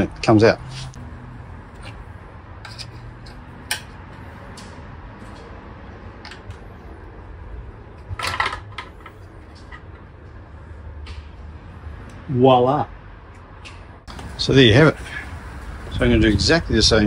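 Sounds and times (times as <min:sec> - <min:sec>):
plastic part clattering: 0:08.1 - 0:09.8.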